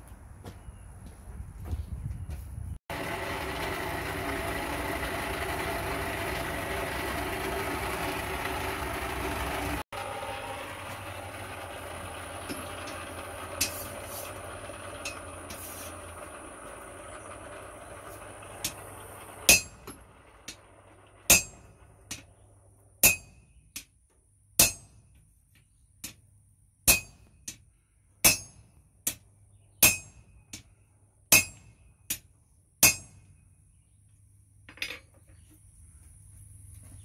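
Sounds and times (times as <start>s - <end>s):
hammer striking iron on anvil: 19.5s - 19.9s, 21.3s - 22.2s, 23.0s - 23.9s, 24.6s - 25.0s, 26.9s - 27.6s, 28.2s - 29.2s, 29.8s - 30.7s, 31.3s - 33.3s.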